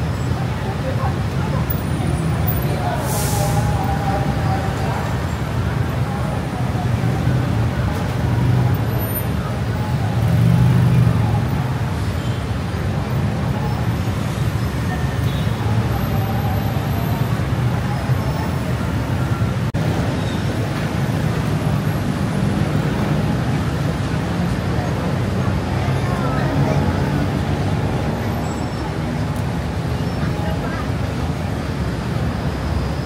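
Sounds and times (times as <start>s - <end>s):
heavy road traffic: 0.0s - 33.0s.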